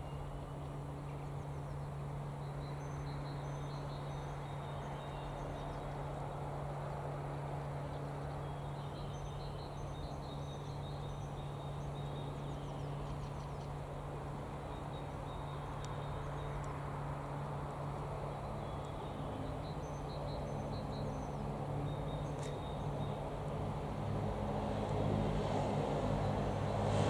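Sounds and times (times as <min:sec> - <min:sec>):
small birds chirping: 0:07.8 - 0:23.7.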